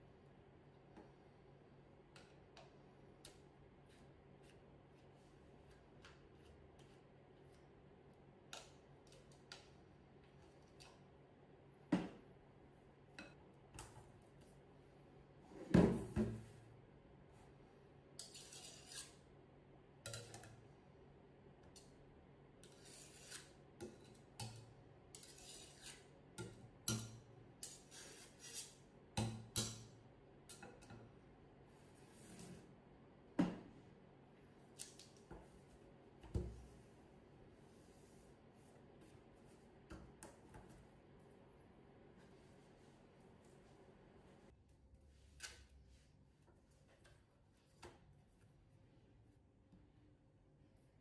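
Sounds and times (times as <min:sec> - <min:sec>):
spatula scraping glass bowl: 0:18.2 - 0:19.2, 0:25.2 - 0:26.1.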